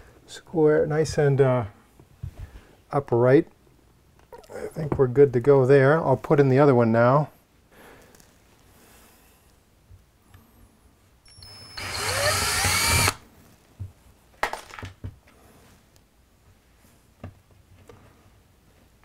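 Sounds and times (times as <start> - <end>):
cordless drill boring drywall: 11.3 - 13.2.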